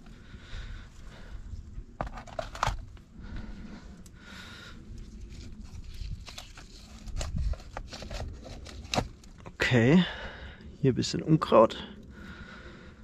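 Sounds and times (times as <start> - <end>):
soft rustle: 5.0 - 9.2.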